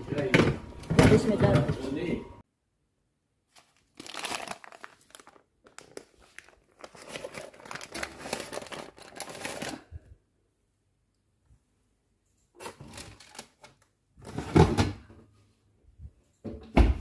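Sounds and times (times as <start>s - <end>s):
baking paper crinkling: 3.5s - 10.0s, 12.6s - 13.9s.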